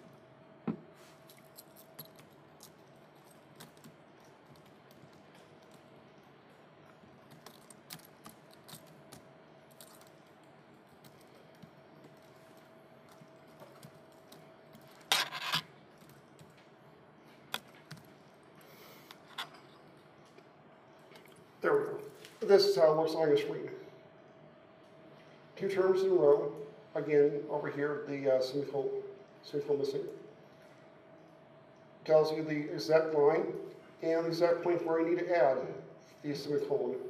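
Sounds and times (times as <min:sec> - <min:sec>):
laptop keyboard typing: 0:01.6 - 0:15.0.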